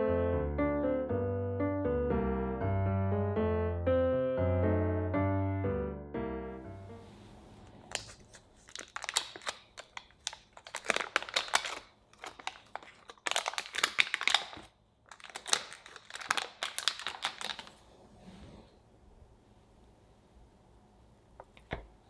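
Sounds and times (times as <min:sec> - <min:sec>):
foil wrapper crinkling: 0:07.9 - 0:17.8.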